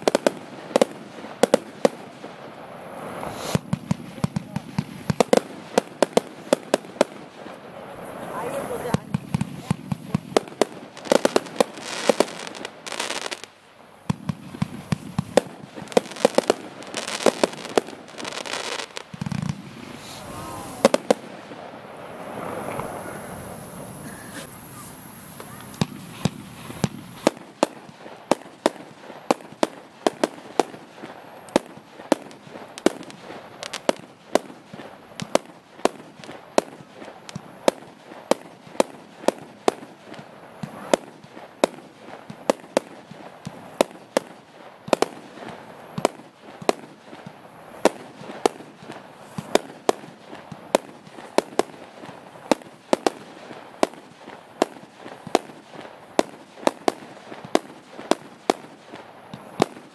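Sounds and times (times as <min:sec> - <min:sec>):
firework cake firing bangs: 0:03.2 - 0:07.4.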